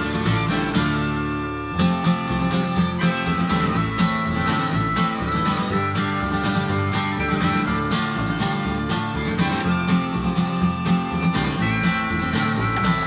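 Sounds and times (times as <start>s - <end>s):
strummed acoustic guitar music: 0.0s - 13.0s.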